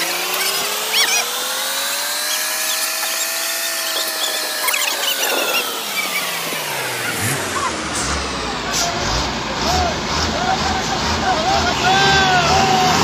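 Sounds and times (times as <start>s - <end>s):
shrill warbling sounds: 0.0s - 8.6s
heavy diesel engine straining: 0.0s - 13.0s.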